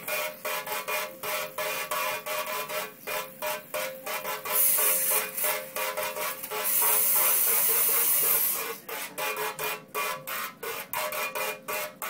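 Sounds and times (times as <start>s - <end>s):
spray gun jet hissing into sink: 4.4s - 8.8s.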